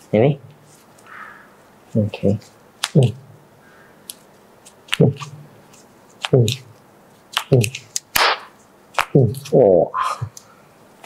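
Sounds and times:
person talking: 0.0s - 0.5s, 1.9s - 3.4s, 4.9s - 5.5s, 6.2s - 6.8s, 7.4s - 8.0s, 9.0s - 10.4s
short vocal sounds: 9.1s - 10.5s.

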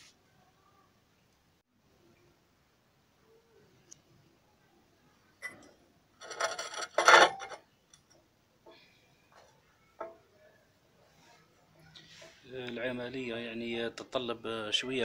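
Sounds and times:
metal scraping on concrete: 6.2s - 7.6s.

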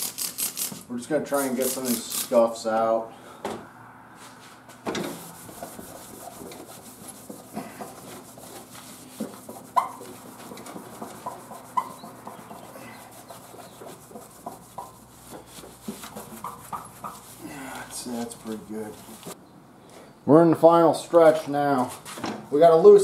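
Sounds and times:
cloth wiping plastic panel: 5.1s - 19.4s
short squeaks and taps: 9.2s - 17.2s.

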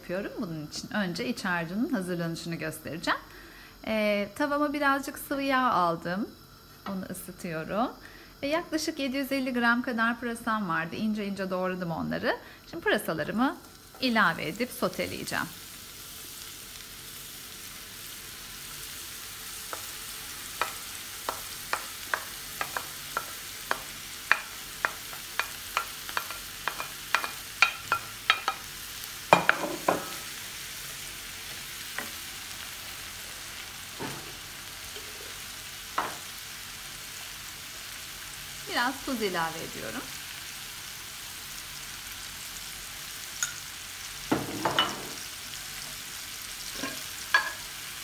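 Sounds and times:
leeks sizzling in hot oil: 0.0s - 48.0s
wooden spoon knocking on bowl: 20.6s - 28.6s, 29.3s - 30.2s.

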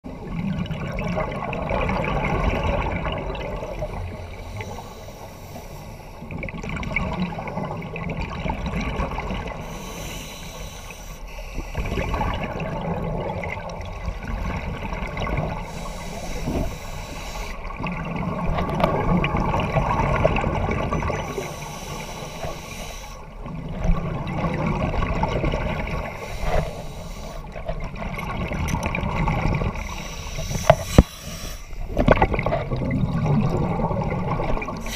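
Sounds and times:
gurgling bubble exhalations: 11.8s - 15.6s, 17.7s - 21.4s, 23.4s - 26.7s, 31.8s - 34.9s
hiss of inhaled air: 15.6s - 17.6s, 21.4s - 23.2s, 26.2s - 27.5s, 29.9s - 31.8s.

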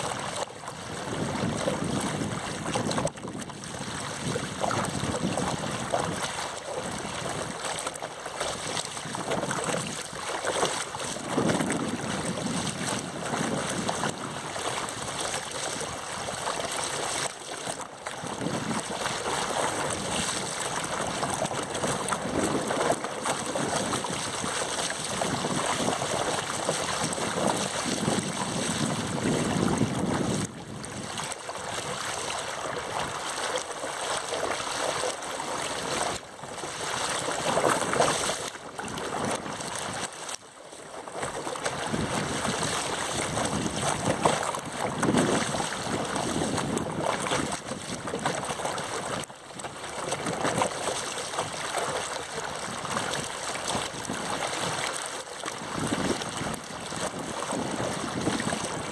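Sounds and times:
wind on microphone: 0.0s - 34.7s, 41.2s - 58.9s
water rushing and splashing: 0.0s - 58.9s.

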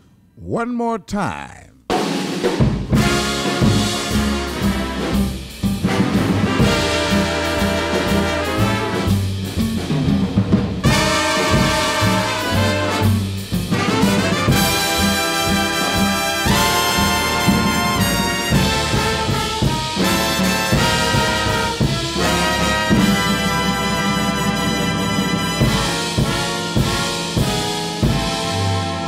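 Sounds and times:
big-band jazz: 0.5s - 29.0s.

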